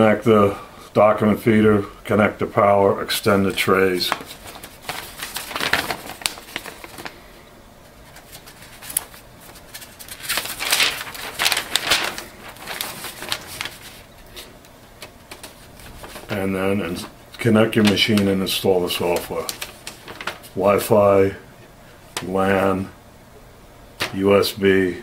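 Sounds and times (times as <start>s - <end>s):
paper sheet rustling and flapping: 3.4s - 21.1s.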